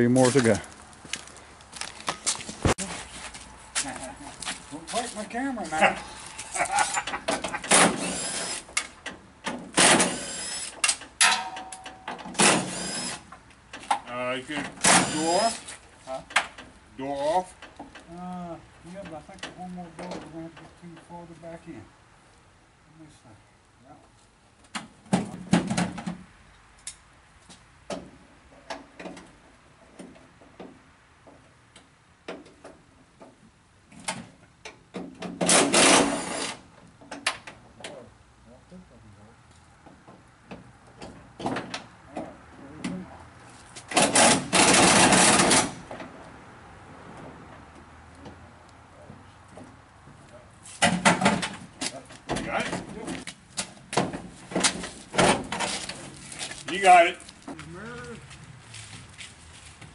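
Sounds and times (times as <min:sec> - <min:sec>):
metal knocks and clanks: 0:09.0 - 0:12.7, 0:50.8 - 0:56.1.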